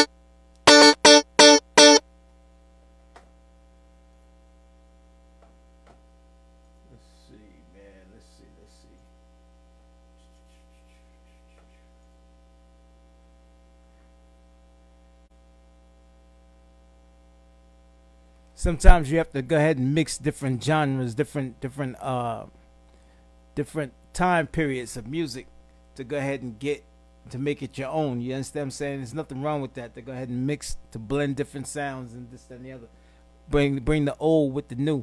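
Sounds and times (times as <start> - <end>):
keyboard chord stabs: 0.0 - 2.0
electrical mains hum: 0.0 - 35.0.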